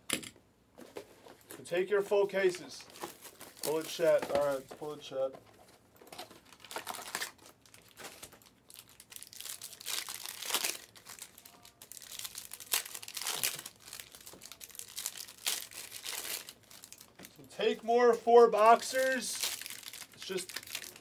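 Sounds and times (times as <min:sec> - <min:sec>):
plastic shrink wrap crackling: 0:02.8 - 0:04.9, 0:06.0 - 0:17.5, 0:18.6 - 0:21.0.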